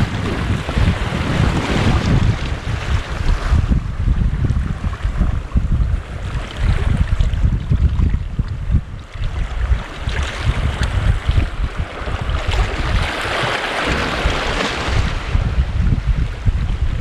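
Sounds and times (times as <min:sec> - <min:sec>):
waves washing against rocks: 0:00.0 - 0:17.0
wind buffeting microphone: 0:00.0 - 0:17.0.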